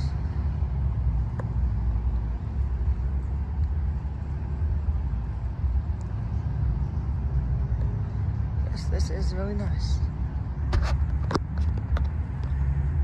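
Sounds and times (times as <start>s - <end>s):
low outdoor rumble: 0.0s - 13.0s.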